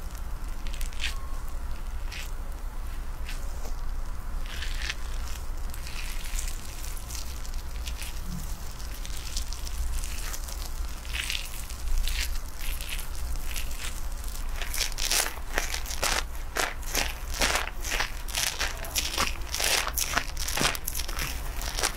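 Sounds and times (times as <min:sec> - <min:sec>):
low steady hum: 0:00.0 - 0:21.9
hands rubbing wet hair: 0:04.4 - 0:21.9.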